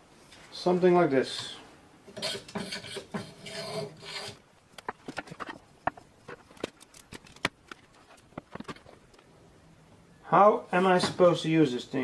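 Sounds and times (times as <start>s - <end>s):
scraping and rubbing: 2.1s - 9.1s.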